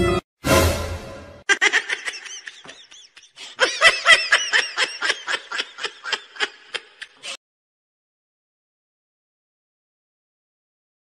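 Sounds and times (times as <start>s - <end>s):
person giggling: 1.5s - 7.4s.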